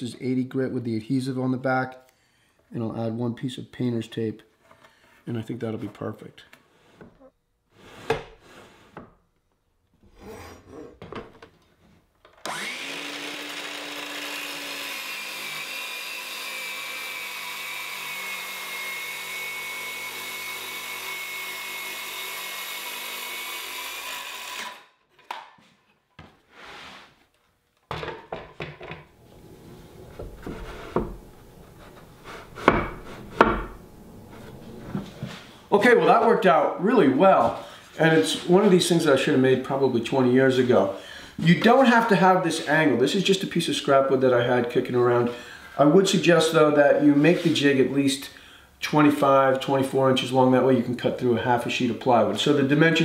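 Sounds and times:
knocks and scrapes of boards: 6.6s - 9.2s, 27.9s - 35.6s
circular saw cutting plywood: 12.4s - 24.9s, 29.2s - 36.4s.

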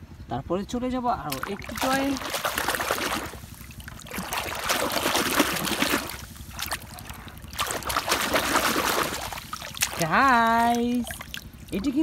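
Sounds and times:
water sloshing and splashing: 1.2s - 12.0s.

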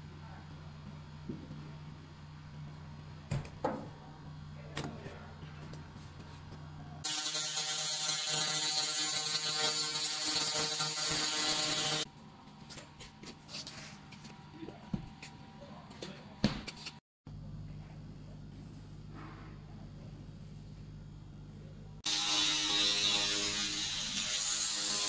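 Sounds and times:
low machine hum: 0.0s - 7.0s, 17.3s - 22.0s
loud rasping buzz: 7.0s - 12.1s, 22.0s - 25.0s.

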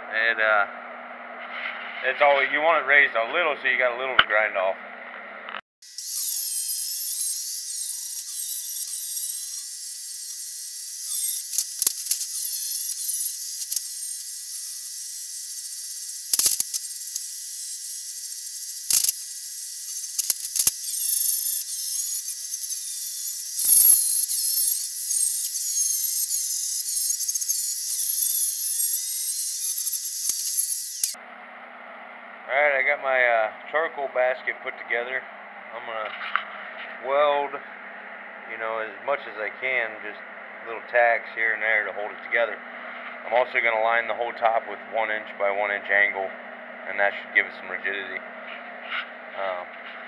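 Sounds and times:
angle grinder grinding metal: 5.8s - 31.2s.

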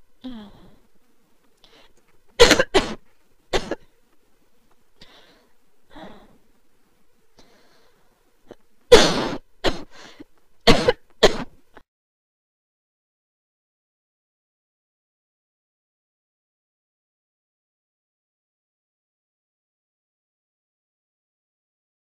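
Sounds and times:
person coughing hard: 2.4s - 3.9s, 8.9s - 10.0s, 10.7s - 11.6s.

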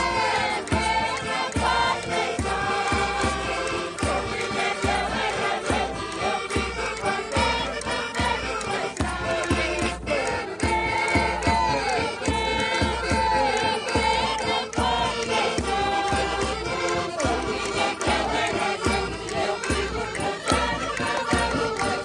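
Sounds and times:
accordion: 0.0s - 22.0s
crowd singing a folk song: 0.0s - 22.0s.

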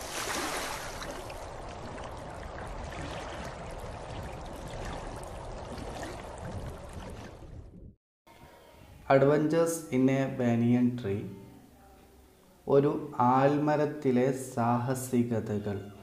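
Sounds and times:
running splashing water: 0.0s - 7.6s.

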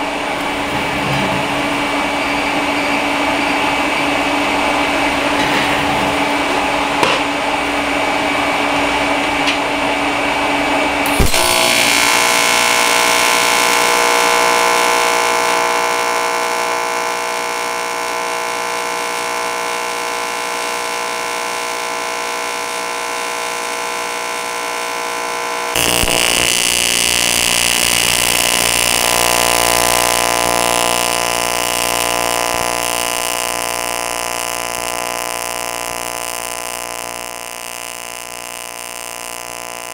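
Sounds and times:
welding arc buzzing: 11.0s - 39.9s.

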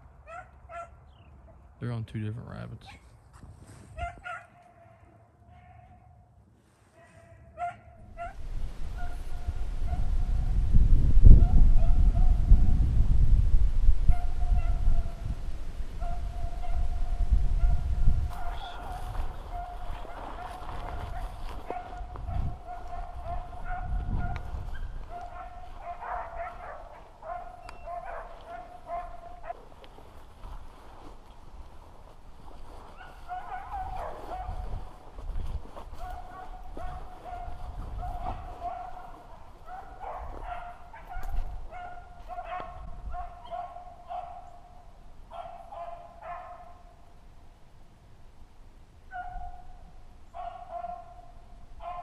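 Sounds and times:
hounds baying: 0.2s - 1.0s, 4.0s - 6.2s, 7.0s - 10.0s, 16.0s - 29.7s, 32.6s - 35.1s, 35.8s - 46.9s, 49.1s - 52.0s
low rumble on microphone: 8.0s - 26.6s.

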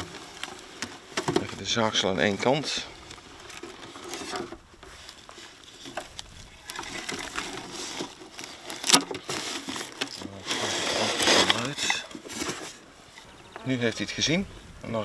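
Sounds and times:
rustling and light scraping: 0.0s - 15.0s.

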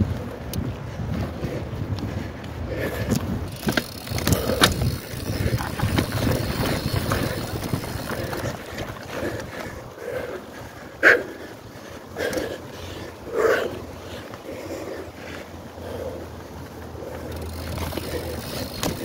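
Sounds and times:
wind buffeting microphone: 0.0s - 14.5s
bike tyres rumbling and rattling: 0.0s - 19.0s
bike clicks and knocks: 2.9s - 9.8s, 17.0s - 19.0s.

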